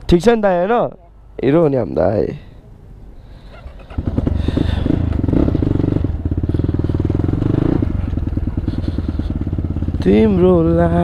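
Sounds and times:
motorcycle engine idling: 0:03.8 - 0:11.0.

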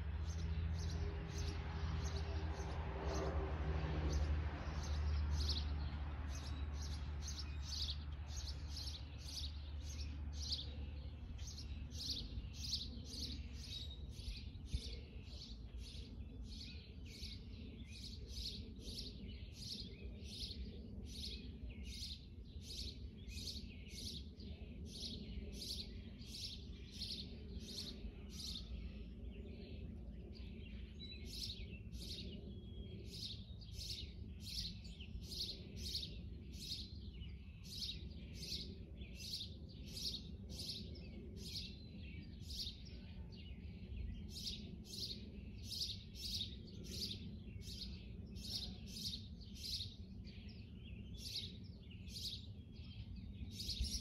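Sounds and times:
songbird chirping: 0:00.0 - 0:54.0.

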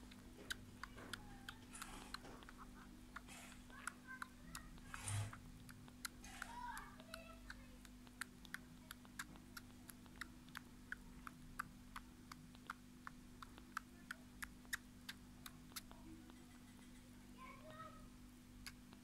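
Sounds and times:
kitten suckling wet clicks: 0:00.0 - 0:16.8, 0:18.6 - 0:19.0.

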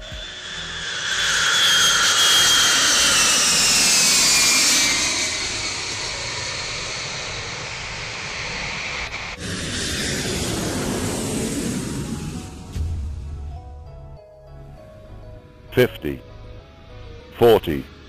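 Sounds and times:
jet aircraft passing low: 0:00.0 - 0:13.5.

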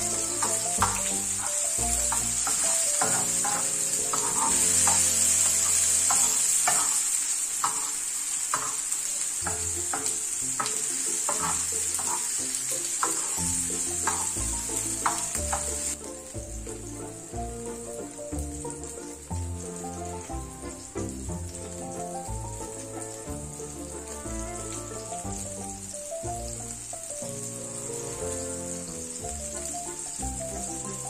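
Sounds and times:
steel spoon scraping a pan: 0:00.0 - 0:14.4
vegetables sizzling in a wok: 0:00.0 - 0:31.0.

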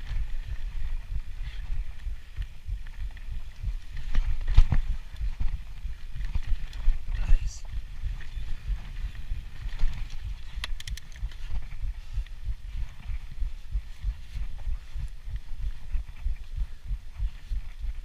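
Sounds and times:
wind buffeting microphone: 0:00.0 - 0:18.0
sharp clicks and rattles: 0:09.8 - 0:11.7.

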